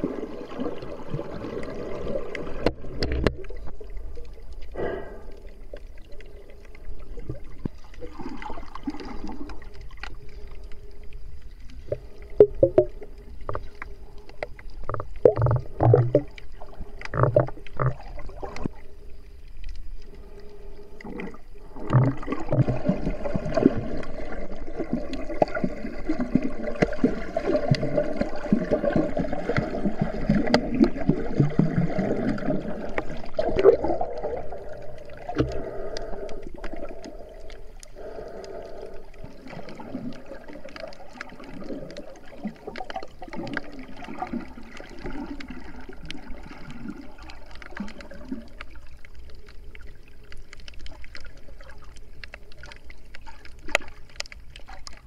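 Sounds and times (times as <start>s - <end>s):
faint steady hum: 0.0s - 55.0s
water gurgling and sloshing: 0.0s - 55.0s.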